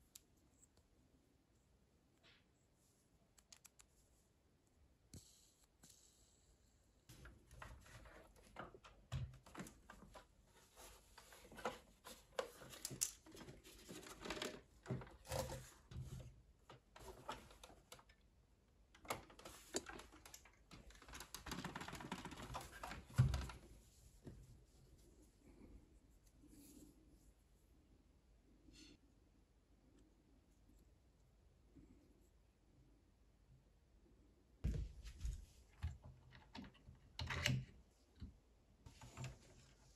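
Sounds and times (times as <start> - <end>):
dull thump: 34.6 - 35.4.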